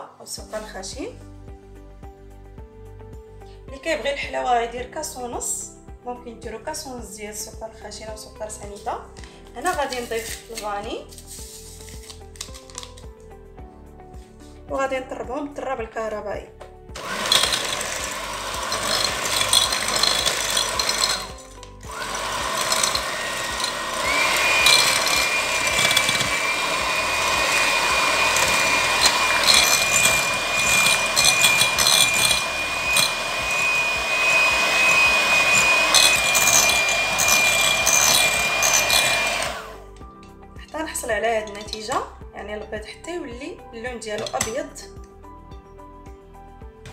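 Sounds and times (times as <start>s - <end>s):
electric mixer whine: 17.0s - 39.9s.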